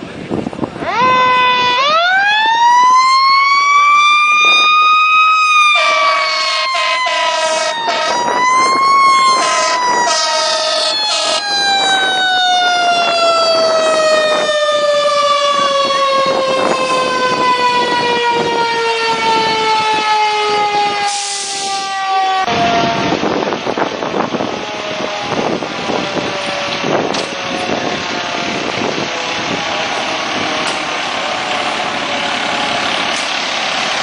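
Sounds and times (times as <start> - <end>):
fire engine siren wailing: 0.0 - 34.0
truck horn blasts: 5.8 - 8.2, 9.4 - 11.4.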